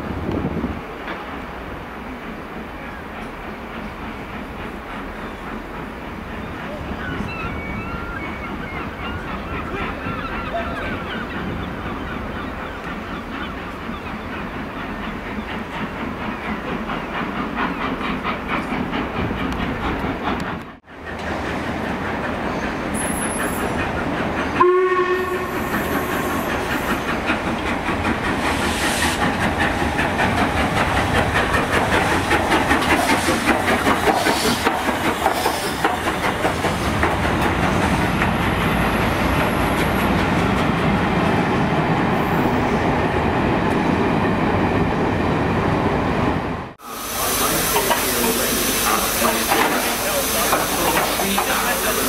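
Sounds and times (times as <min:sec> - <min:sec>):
train wheels clanking: 0:12.8 - 0:41.4, 0:47.2 - 0:52.0
steam hissing: 0:21.9 - 0:39.1, 0:46.8 - 0:52.0
steam locomotive whistle: 0:24.6 - 0:26.9.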